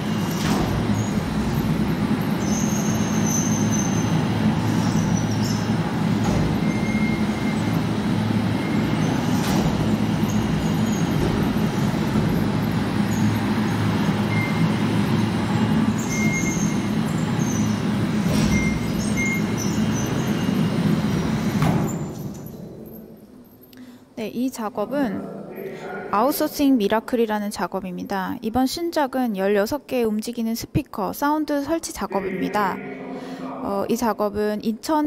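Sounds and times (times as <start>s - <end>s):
high squealing tones: 0.8s - 5.8s, 32.0s - 34.2s.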